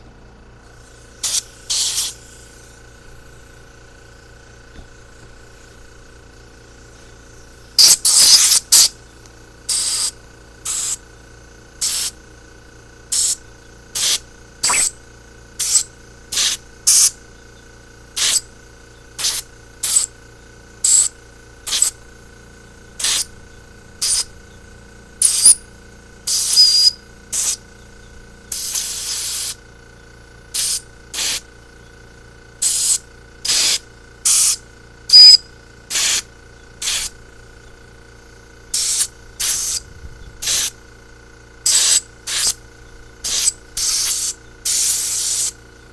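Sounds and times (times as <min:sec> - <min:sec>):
compressed air hissing blasts: 0:00.7 - 0:03.7, 0:04.8 - 0:09.0, 0:09.7 - 0:11.1, 0:11.8 - 0:12.2, 0:13.1 - 0:15.0, 0:15.6 - 0:17.2, 0:18.1 - 0:18.5, 0:19.2 - 0:20.1, 0:20.8 - 0:22.1, 0:23.0 - 0:24.5, 0:25.2 - 0:25.6, 0:26.2 - 0:27.7, 0:28.5 - 0:29.6, 0:30.5 - 0:31.5, 0:32.6 - 0:37.2, 0:38.7 - 0:40.8, 0:41.6 - 0:42.6, 0:43.2 - 0:45.6.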